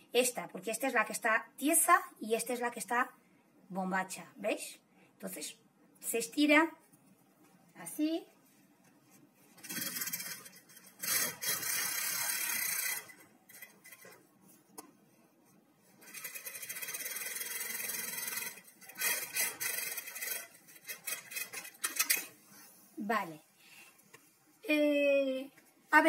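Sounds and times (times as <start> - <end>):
sewing machine stitching: 9.6 - 14.2, 16.0 - 22.3.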